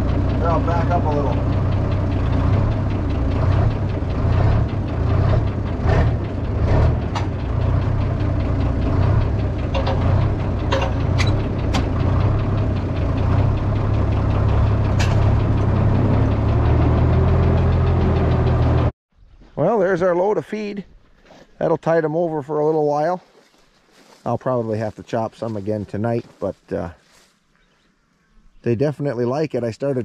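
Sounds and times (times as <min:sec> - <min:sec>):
tractor engine running: 0:00.0 - 0:19.0
sharp clicks and knocks: 0:01.3 - 0:18.9.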